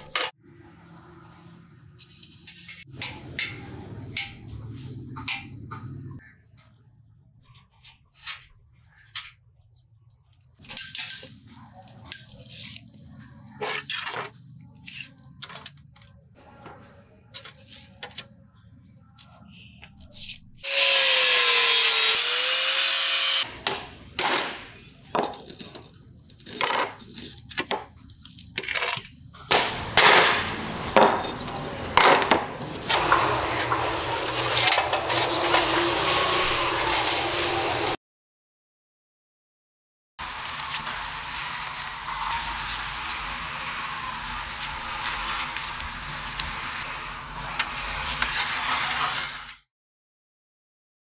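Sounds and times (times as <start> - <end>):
angle grinder cutting steel: 20.6 - 23.5, 30.3 - 38.0.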